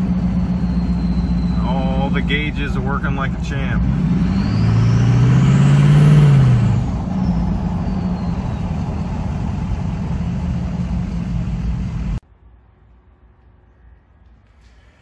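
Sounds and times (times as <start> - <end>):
diesel engine pulling under throttle: 0.0 - 12.2
road noise: 0.0 - 15.0
turbo whistle: 0.2 - 2.5, 7.2 - 9.3.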